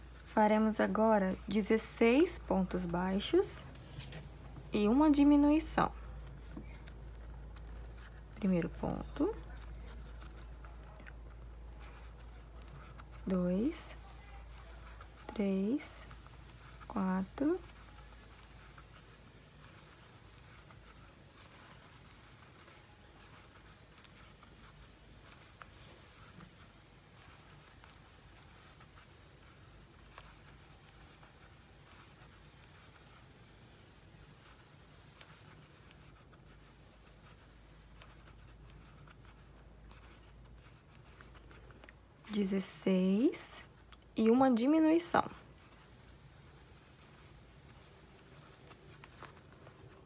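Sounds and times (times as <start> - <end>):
low steady hum: 0.0 - 50.0.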